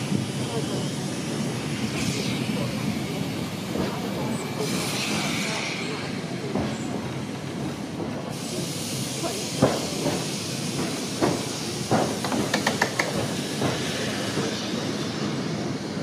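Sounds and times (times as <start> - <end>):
tram rushing noise: 0.0 - 16.0
wheels clunking on rails: 10.8 - 13.9.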